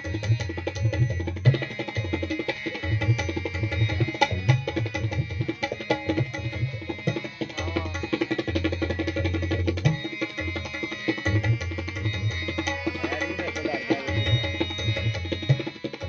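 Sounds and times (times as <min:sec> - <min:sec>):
sustained harmonium notes: 0:00.0 - 0:16.0
tabla playing: 0:00.0 - 0:16.0.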